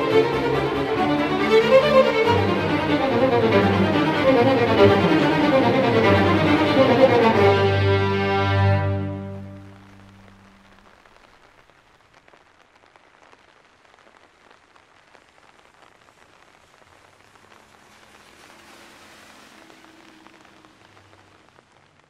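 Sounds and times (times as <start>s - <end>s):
string orchestra: 0.0s - 10.5s
rain falling: 0.0s - 22.0s.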